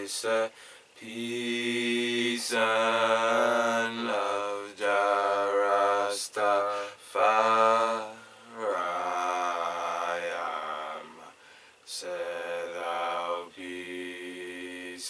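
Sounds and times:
man chanting unaccompanied: 0.0 - 15.0
short breaths: 0.5 - 1.0, 6.7 - 7.0, 11.3 - 11.9.

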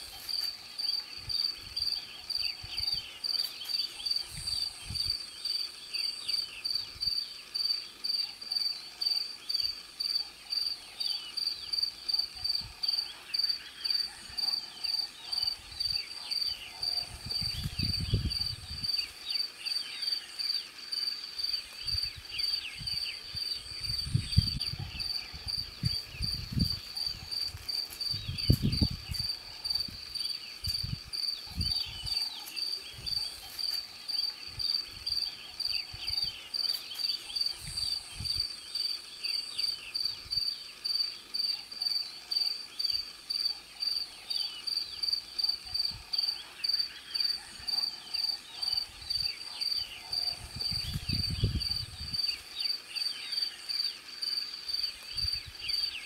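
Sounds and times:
faint chirps: 0.0 - 56.0.

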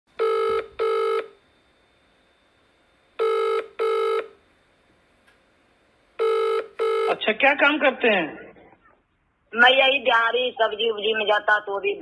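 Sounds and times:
telephone double ringing: 0.2 - 1.3, 3.2 - 4.3, 6.2 - 7.2.

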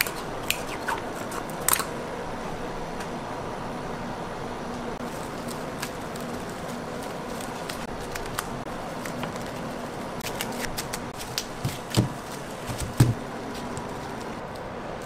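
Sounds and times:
steady background hiss: 0.0 - 15.0
hands handling sugar candy: 5.0 - 14.7.

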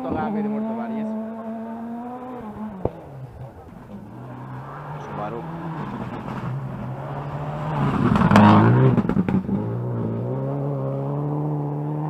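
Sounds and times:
rally car passing at speed: 0.0 - 12.0
sharp cracks: 2.2 - 4.8.

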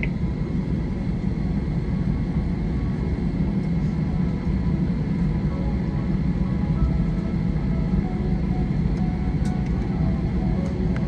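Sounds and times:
aircraft rolling on taxiway: 0.0 - 11.0
jet engines idling drone: 0.0 - 11.0.

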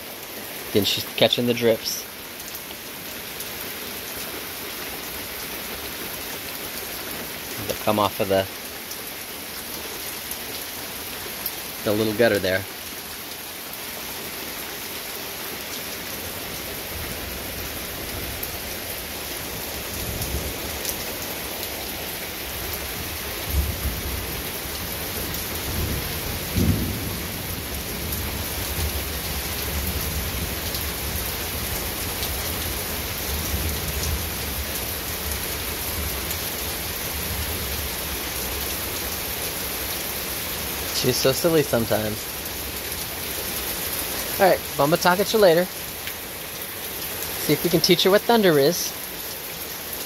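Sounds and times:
heavy rain falling: 0.0 - 50.0
rolling thunder: 25.6 - 29.0.

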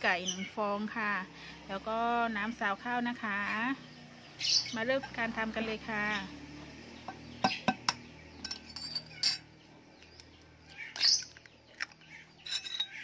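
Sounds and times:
birds chirping: 0.0 - 13.0
eggshell crackling: 10.0 - 13.0.

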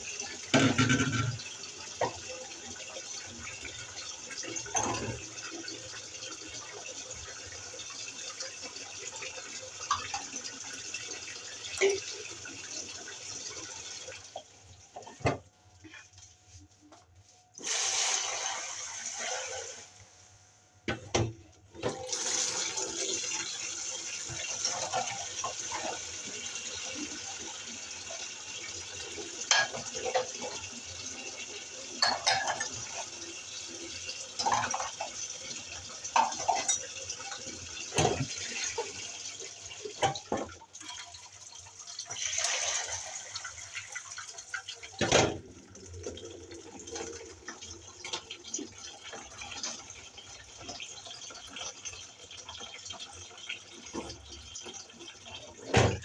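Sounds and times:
tap water running and splashing: 0.0 - 16.2, 20.9 - 56.0
dishes and utensils clinking: 4.6 - 5.2, 29.4 - 30.6, 32.0 - 33.1, 36.1 - 37.0.

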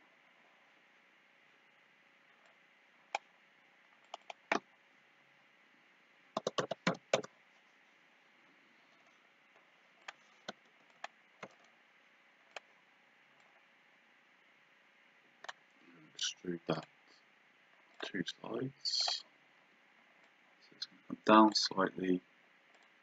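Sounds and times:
mouse and keyboard clicks: 4.0 - 4.6, 6.4 - 7.3.

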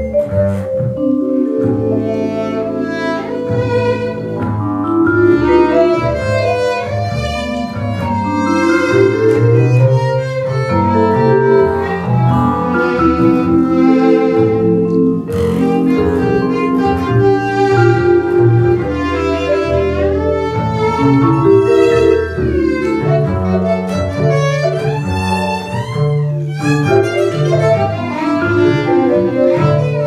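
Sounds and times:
upright double bass: 0.0 - 30.0
violin melody: 0.0 - 30.0
vibraphone: 10.7 - 19.5.

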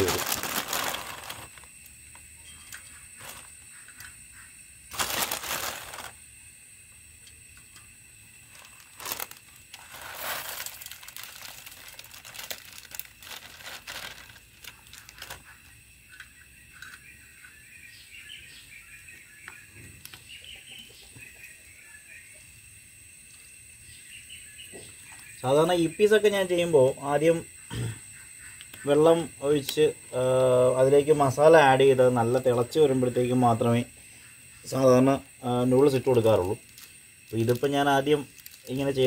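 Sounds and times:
plastic packet crinkling: 0.0 - 1.7, 4.9 - 6.2, 8.6 - 15.5, 38.3 - 38.9.

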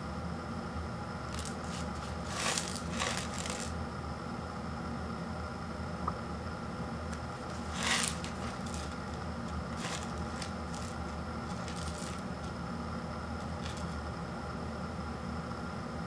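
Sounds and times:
steady background hum: 0.0 - 16.0
paper cup rustling in hands: 1.3 - 3.7, 7.2 - 12.6, 13.4 - 14.0.

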